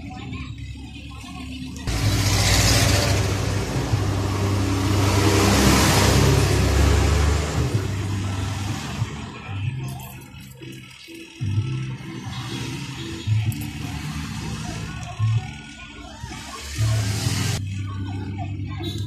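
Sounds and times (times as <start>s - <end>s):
loud engine hum with hiss: 1.9s - 9.5s, 16.2s - 17.6s.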